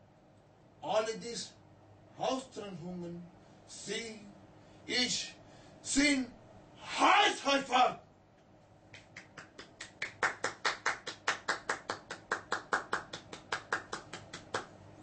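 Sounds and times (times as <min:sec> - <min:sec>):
hand clapping: 0:08.9 - 0:14.8.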